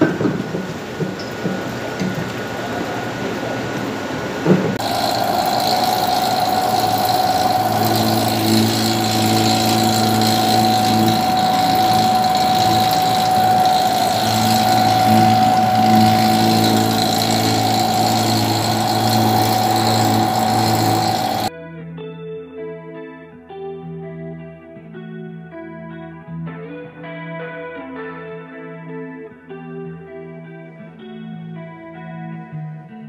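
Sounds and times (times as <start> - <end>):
dough divider motor hum and whine: 4.8 - 21.5
low drone: 4.8 - 21.5.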